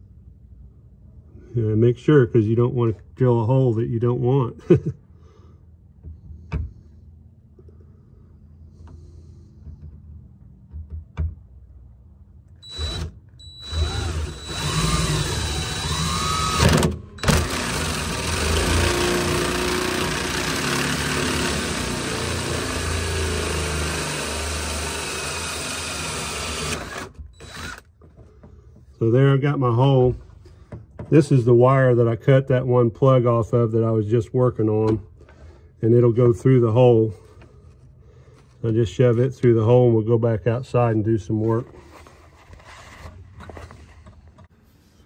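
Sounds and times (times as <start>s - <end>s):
power drill with hole saw cutting: 12.6s - 27.9s.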